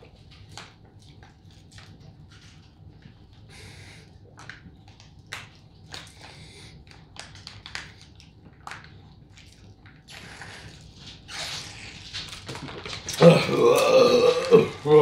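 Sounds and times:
foil pouches crinkling: 10.6s - 15.0s.

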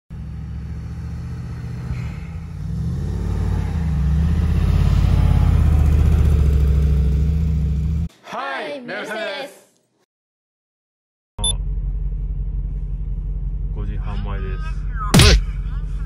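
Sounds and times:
suv engine rumbling: 0.1s - 8.1s, 11.5s - 16.0s.

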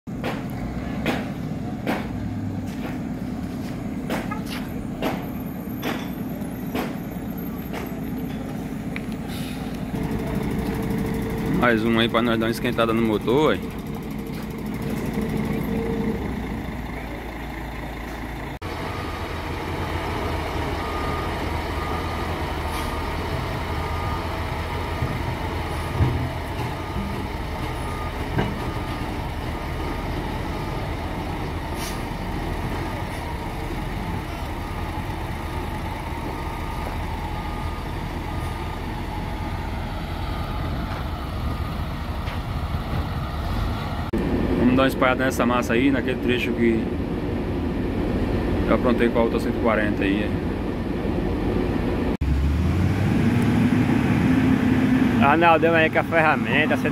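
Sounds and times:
diesel engine running: 0.1s - 56.9s
reversing alarm beeping: 18.6s - 42.4s.

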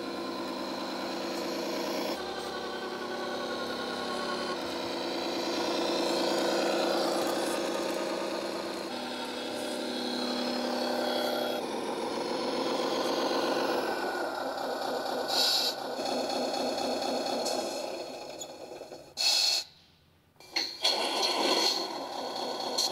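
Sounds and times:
simulated truck engine sound: 0.0s - 19.8s, 20.4s - 22.9s
short hiss: 19.2s - 20.0s.

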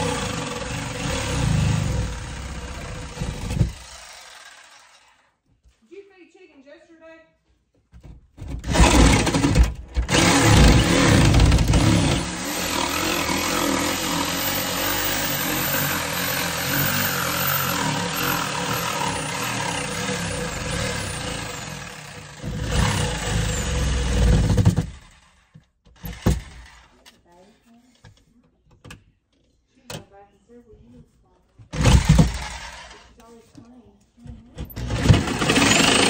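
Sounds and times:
electric jigsaw cutting: 0.0s - 5.3s, 8.6s - 25.4s, 26.0s - 27.0s, 31.7s - 33.1s, 34.8s - 36.0s.

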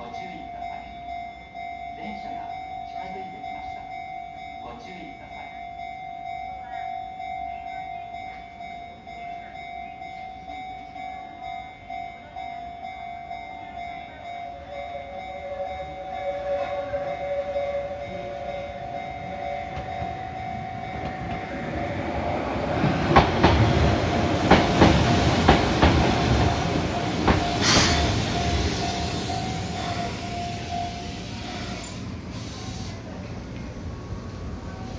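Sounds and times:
level crossing bell ringing: 0.0s - 23.0s
tram rumble: 0.0s - 34.9s.

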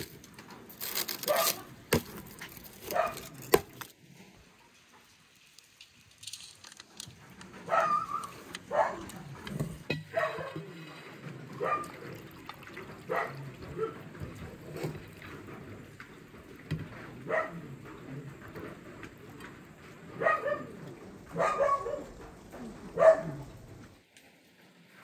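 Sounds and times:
aluminium foil crackling: 0.0s - 4.2s, 4.8s - 11.9s
liquid sloshing: 9.2s - 17.2s.

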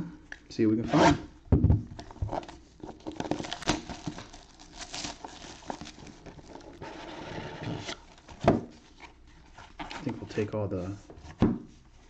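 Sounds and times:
plastic wrap crinkling: 2.0s - 7.2s.

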